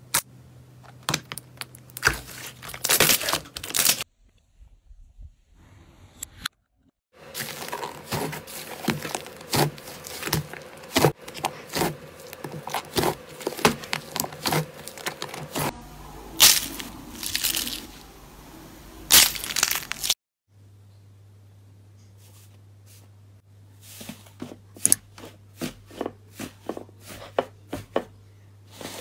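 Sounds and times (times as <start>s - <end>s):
slime squishing: 7.2s - 15.7s
slime crackling and popping: 19.1s - 20.2s.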